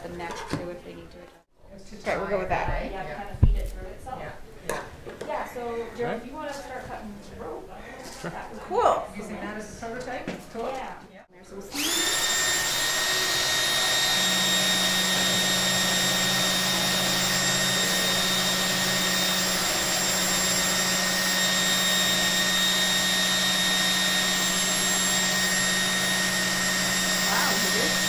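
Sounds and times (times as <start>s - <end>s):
electric drill whining: 11.7s - 28.0s.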